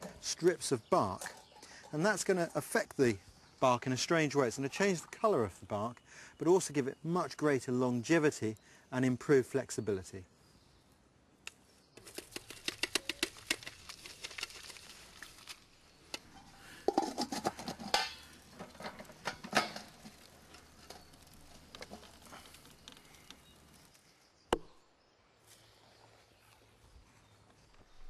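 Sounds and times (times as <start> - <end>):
metal pot lid clanking: 16.3 - 20.2.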